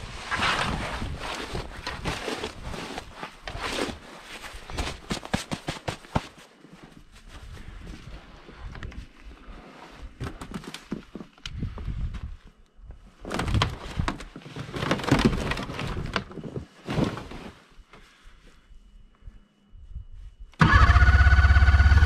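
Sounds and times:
rustling and crunching in snow: 0:00.0 - 0:10.2.

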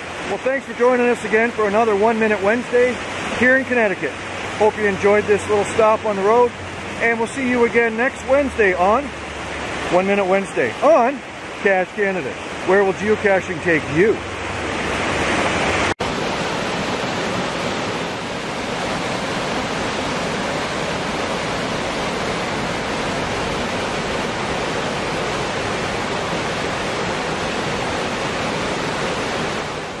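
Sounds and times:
waterfall rushing over rocks: 0:00.0 - 0:30.0.

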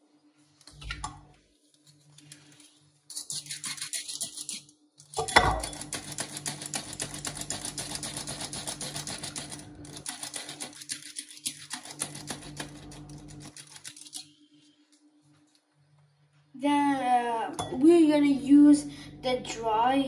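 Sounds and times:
flour sifter clicking rattle: 0:05.0 - 0:14.3.

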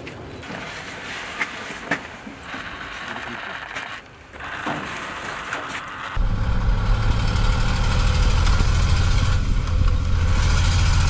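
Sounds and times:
diesel engine idling: 0:06.2 - 0:11.0.

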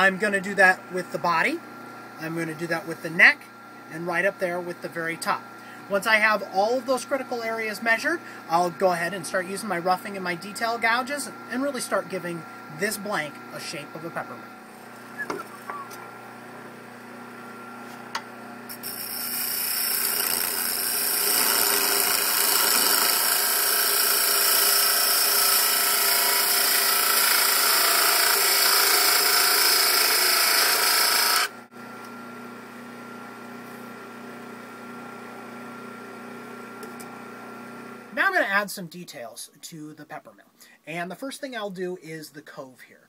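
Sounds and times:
wood lathe motor hum: 0:02.1 - 0:32.2
turning tool scraping wood: 0:18.7 - 0:31.5.

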